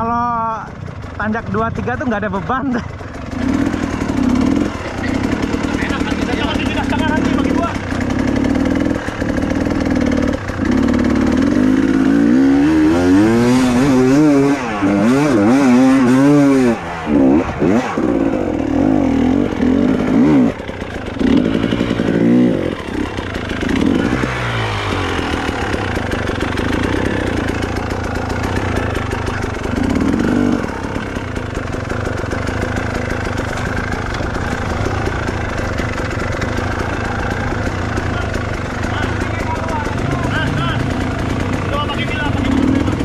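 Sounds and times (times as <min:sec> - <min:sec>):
motorcycle engine revving: 0:00.0 - 0:43.0.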